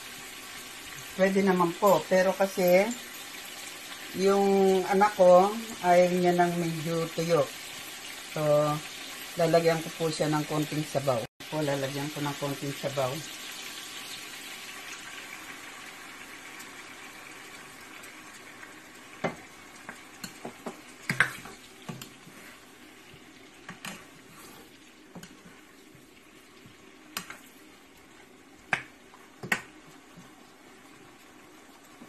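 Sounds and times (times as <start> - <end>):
chicken sizzling in a frying pan: 0.0 - 32.0
spoon scraping and knocking pan: 19.2 - 22.6.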